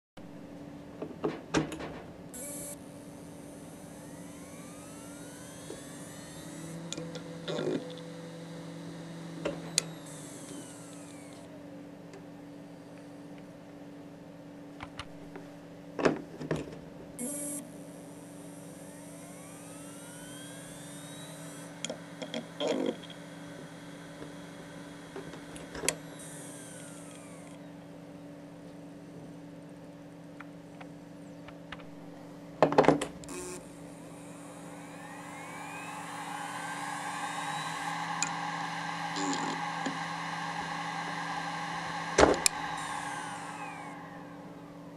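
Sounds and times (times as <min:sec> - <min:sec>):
low steady hum: 0:02.2 - 0:13.7
hard drive whine rising: 0:02.3 - 0:15.6, 0:17.2 - 0:44.9
hard drive clicks: 0:18.6 - 0:27.7.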